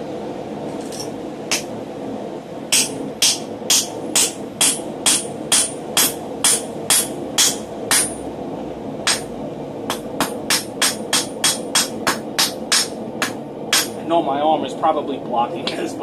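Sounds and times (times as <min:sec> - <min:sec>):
hammer ringing on hot iron: 0:02.7 - 0:08.2, 0:09.9 - 0:14.0.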